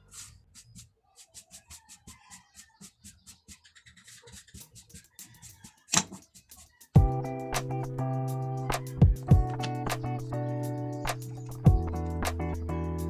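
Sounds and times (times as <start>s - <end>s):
quick scratching strokes: 0.0s - 7.0s.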